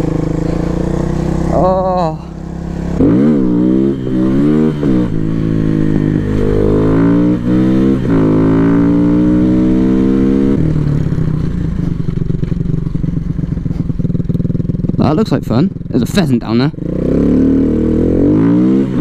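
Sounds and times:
dirt bike engine revving: 0.0s - 11.9s, 16.0s - 19.0s.

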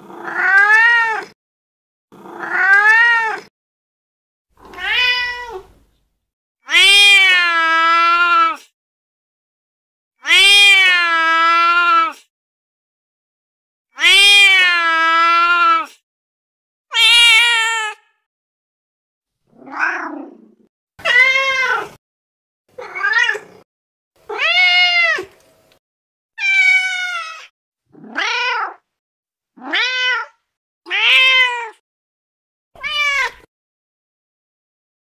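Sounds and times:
recorded cat meows: 0.0s - 1.4s, 2.2s - 3.5s, 4.6s - 5.8s, 6.6s - 8.7s, 10.2s - 12.3s, 13.9s - 16.0s, 16.9s - 18.2s, 19.5s - 22.0s, 22.8s - 23.6s, 24.3s - 25.3s, 26.4s - 28.9s, 29.6s - 31.8s, 32.8s - 33.5s.

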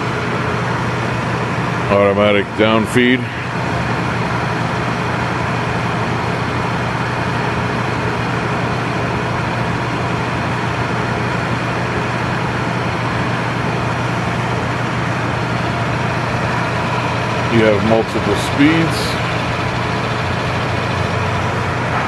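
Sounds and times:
drill press motor humming: 0.0s - 22.0s.

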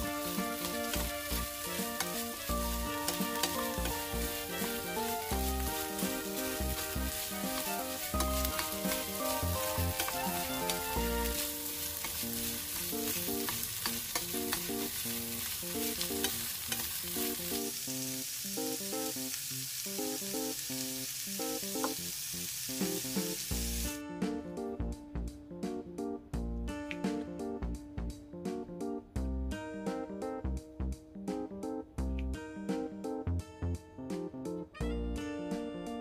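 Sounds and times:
background music: 0.0s - 17.7s, 22.8s - 36.0s
food sizzling in a frying pan: 0.0s - 24.0s
spatula clicking against pan: 13.4s - 14.8s.

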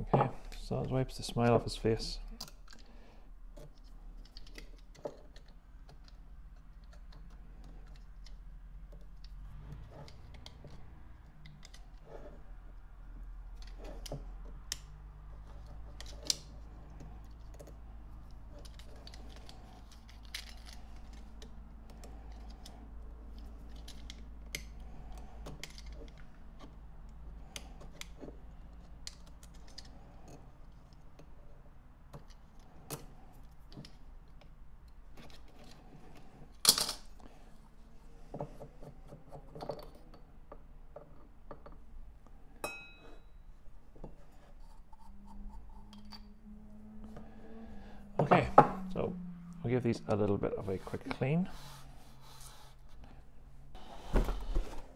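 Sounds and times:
low steady hum: 0.0s - 54.9s
short metallic ring: 42.6s - 43.4s.

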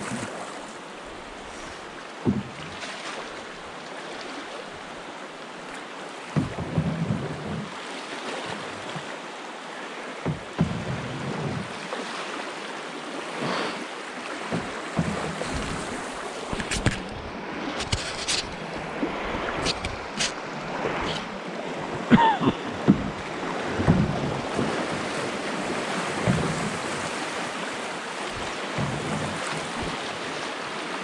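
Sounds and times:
whitewater rushing: 0.0s - 31.0s
short knocks: 10.2s - 11.7s, 14.5s - 17.0s, 22.1s - 23.2s, 23.8s - 24.7s.

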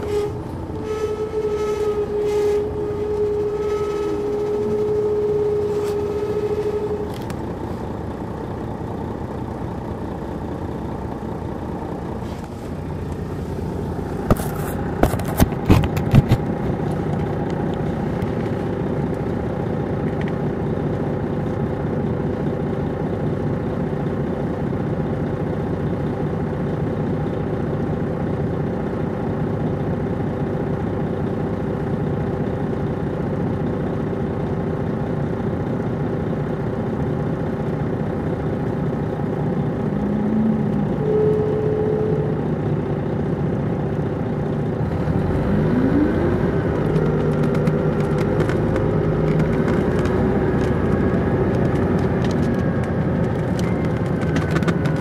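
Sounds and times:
steady high whine: 0.0s - 24.2s, 35.9s - 45.3s
diesel bus engine running: 0.0s - 55.0s.

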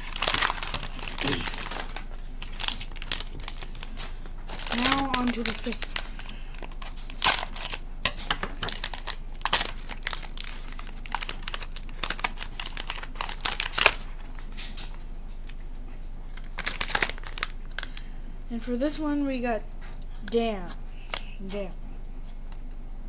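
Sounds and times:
foil bag crinkling: 0.0s - 18.0s.

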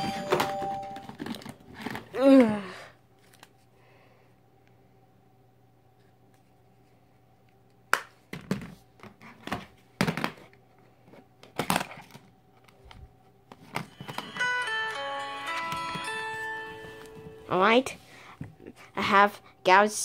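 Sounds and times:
phone ringtone beeps: 0.0s - 1.1s, 14.0s - 17.5s
phones knocking and rustling: 0.0s - 2.1s, 13.5s - 17.4s.

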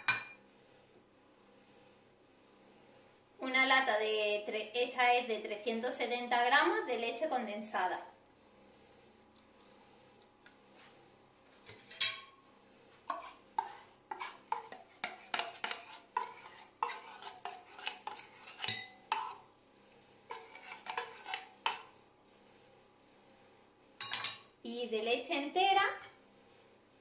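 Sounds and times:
metal spoon scraping tin can: 13.1s - 19.4s, 20.3s - 21.9s.

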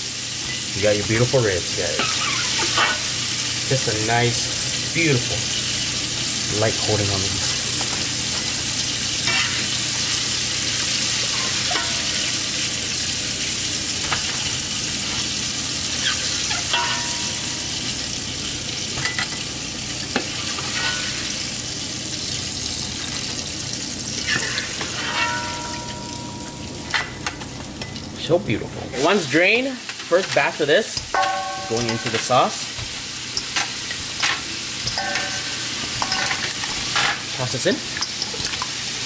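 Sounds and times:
deep-frying sizzle: 0.0s - 39.0s
metal skimmer clinking: 25.0s - 27.1s, 31.2s - 32.4s.

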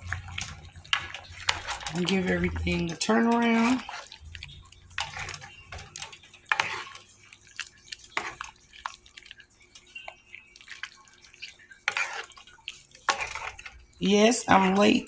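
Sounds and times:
spoon stirring gravy: 0.0s - 15.0s.

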